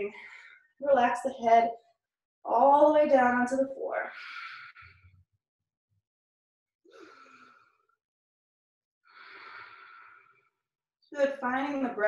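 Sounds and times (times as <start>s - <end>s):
woman breathing slowly: 0.0s - 0.8s, 4.1s - 5.2s, 6.9s - 7.9s, 9.1s - 10.6s.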